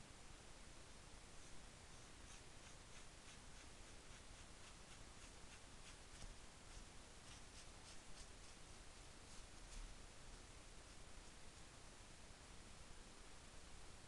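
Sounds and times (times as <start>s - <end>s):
steady low hiss: 0.0s - 14.0s
pen scratching on fabric: 1.4s - 8.6s.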